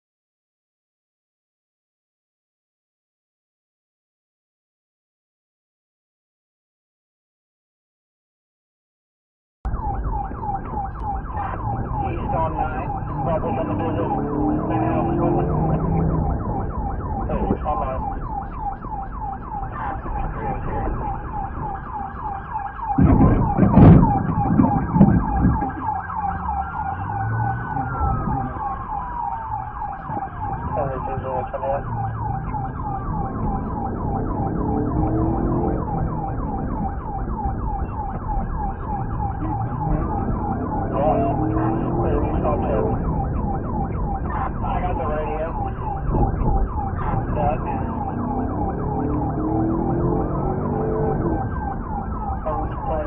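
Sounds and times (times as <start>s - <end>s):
engine and road rumble: 9.7s - 53.0s
police siren yelp: 9.7s - 53.0s
siren wail: 9.7s - 53.0s
loud thump: 22.9s - 25.7s.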